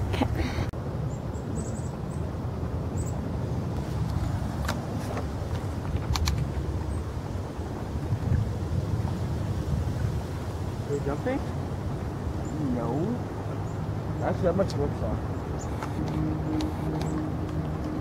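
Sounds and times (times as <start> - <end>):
wind rumbling on microphone: 0.0 - 18.0
camera handling clicks: 6.1 - 6.4.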